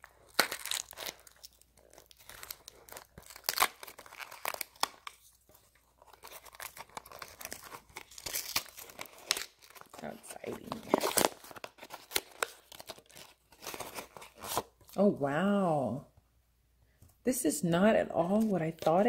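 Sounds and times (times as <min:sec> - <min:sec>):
plastic wrapping crinkling and ripping: 0:00.0 - 0:15.0.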